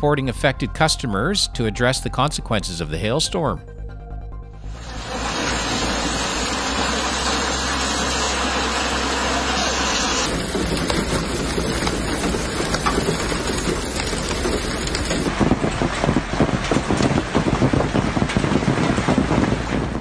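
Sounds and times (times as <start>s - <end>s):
hail clattering on ground and vehicles: 4.8s - 20.0s.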